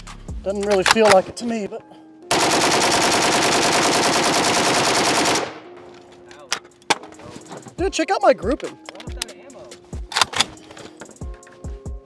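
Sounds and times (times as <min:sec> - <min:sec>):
rifle firing full-auto burst: 0:02.3 - 0:05.7.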